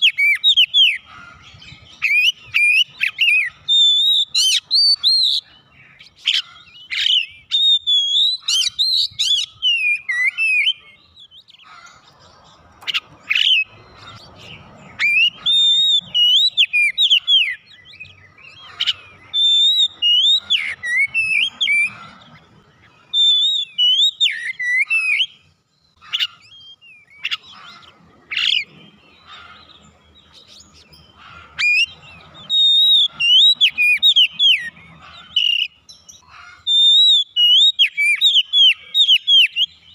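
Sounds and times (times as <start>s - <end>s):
bird singing whistled phrases: 0.0s - 1.0s, 1.9s - 11.6s, 14.5s - 22.0s, 22.8s - 25.5s, 31.6s - 39.9s.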